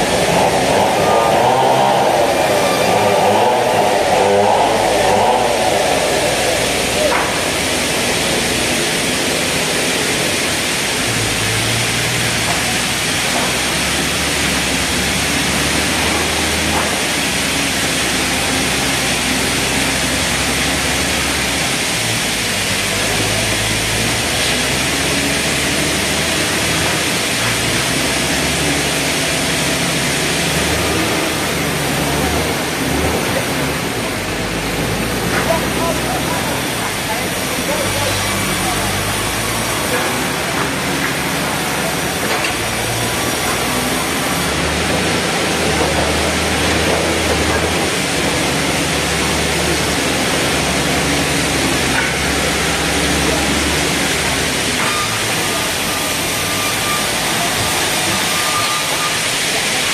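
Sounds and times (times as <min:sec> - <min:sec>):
band saw and sawmill machinery: 0:00.0 - 0:59.9.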